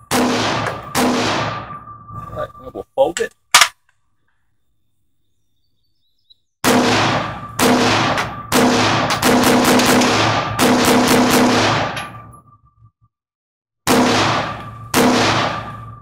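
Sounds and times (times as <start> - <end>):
distorted rifle shots: 0.0 - 2.1, 6.6 - 12.3, 13.9 - 16.0.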